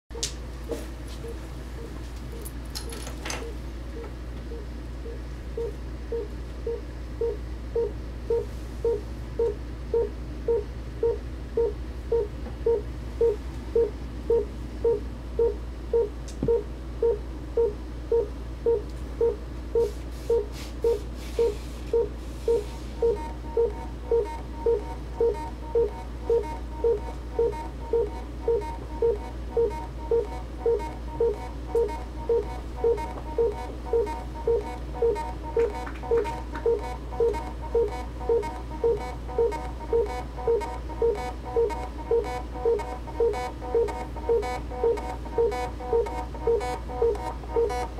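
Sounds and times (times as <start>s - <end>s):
repeating synth note: 22.5s - 47.9s.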